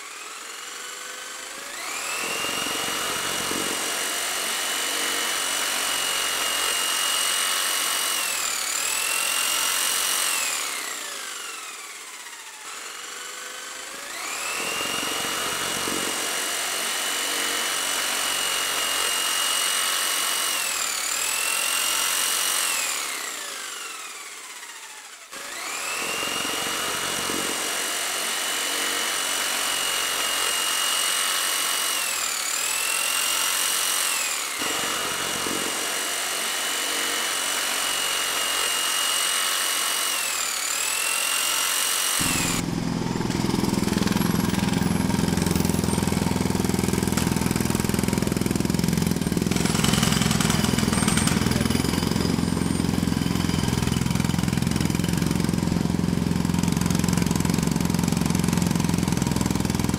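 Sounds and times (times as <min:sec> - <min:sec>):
power tool motor whine: 0:00.0 - 0:59.9.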